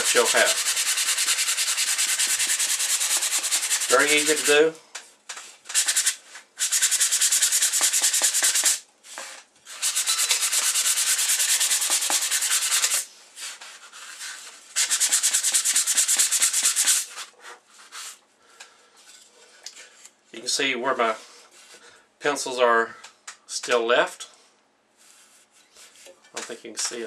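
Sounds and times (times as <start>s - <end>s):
sanding sponge rubbing wood: 0.0s - 4.6s, 5.8s - 8.8s, 9.8s - 17.3s.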